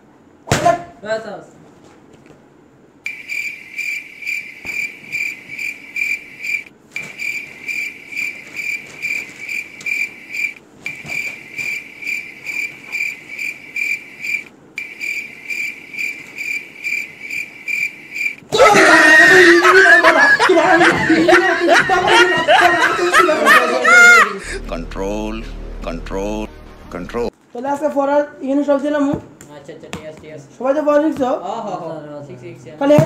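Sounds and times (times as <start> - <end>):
cricket chirping: 3.0 - 18.4.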